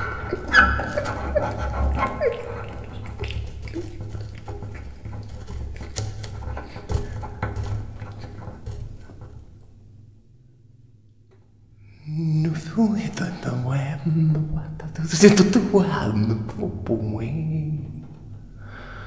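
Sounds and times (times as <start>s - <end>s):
bow scratching strings: 0.0s - 10.4s.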